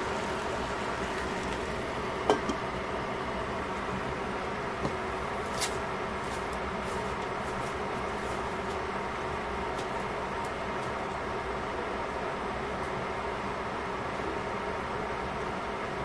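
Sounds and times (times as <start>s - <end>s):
steady background hiss: 0.0s - 16.0s
glass lid clinking on pan: 2.2s - 2.6s.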